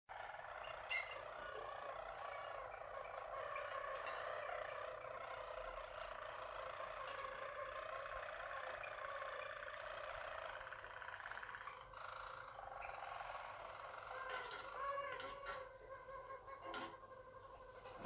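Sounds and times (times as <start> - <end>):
canaries singing: 0.1 - 18.0.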